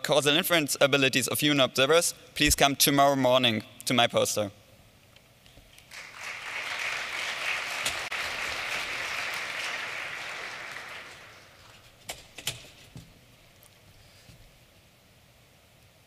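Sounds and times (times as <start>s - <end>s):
audience applauding: 5.9s - 11.8s.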